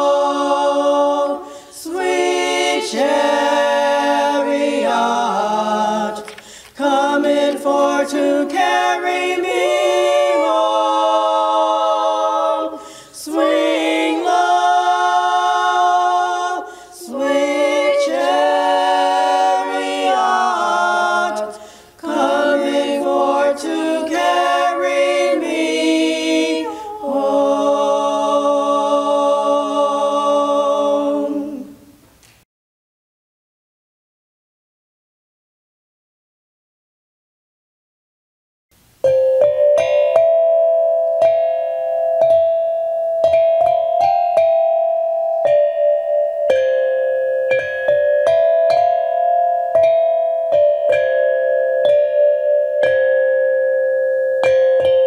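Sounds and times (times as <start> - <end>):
women singing a cappella: 0.0 - 32.0.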